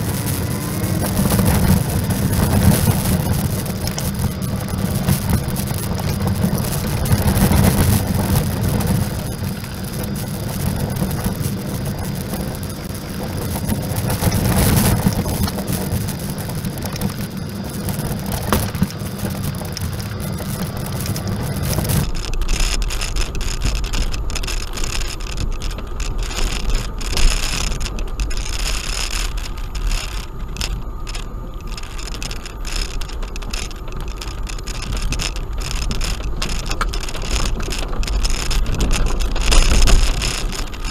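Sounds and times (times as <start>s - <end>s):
car engine drone: 0.0s - 40.9s
tyres on gravel: 0.0s - 40.9s.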